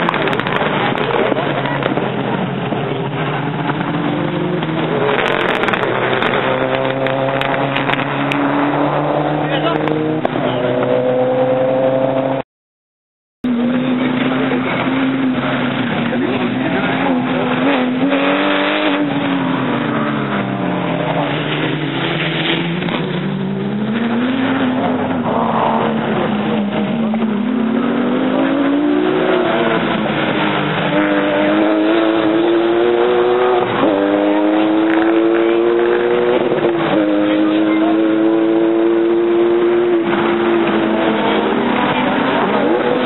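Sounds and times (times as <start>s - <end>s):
rally car engine running hard: 13.4s - 43.0s.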